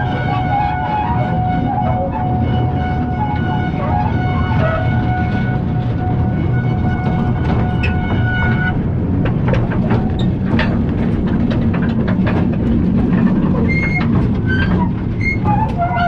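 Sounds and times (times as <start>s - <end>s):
train wheels rumbling on rails: 0.0s - 16.0s
wheels clacking over track: 4.6s - 16.0s
high-pitched wheel squeals: 13.6s - 16.0s.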